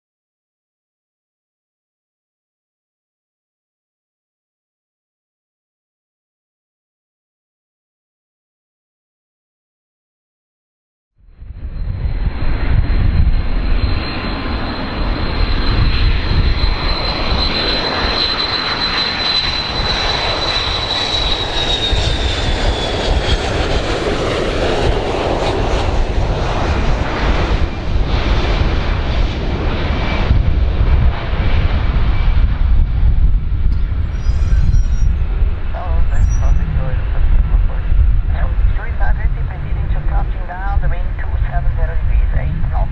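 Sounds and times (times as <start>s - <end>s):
jet engines rumbling and whining: 11.3s - 42.9s.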